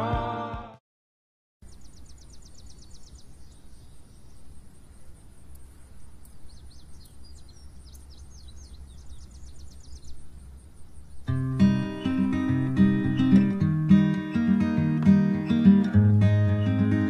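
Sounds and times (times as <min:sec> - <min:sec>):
bird trilling: 0:11.3 - 0:13.7.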